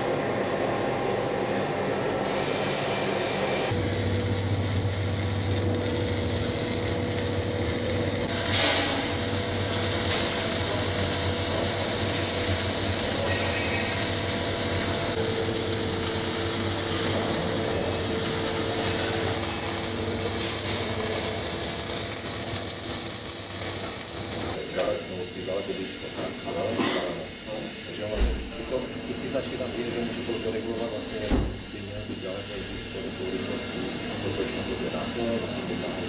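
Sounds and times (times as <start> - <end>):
welding arc crackling: 3.7 - 24.6.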